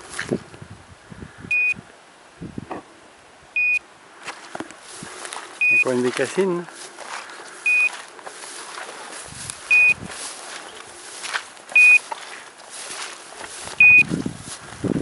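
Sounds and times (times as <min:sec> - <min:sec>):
footsteps rustling through grass: 0:00.0 - 0:00.6, 0:04.1 - 0:15.0
high electronic collar beeps: 0:01.5 - 0:01.8, 0:03.6 - 0:03.8, 0:05.6 - 0:05.9, 0:07.6 - 0:08.0, 0:09.7 - 0:10.0, 0:11.8 - 0:12.0, 0:13.8 - 0:14.1.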